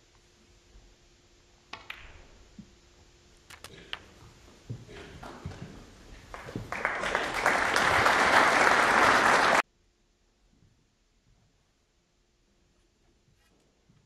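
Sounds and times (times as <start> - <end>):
audience applauding: 6.2 - 9.6.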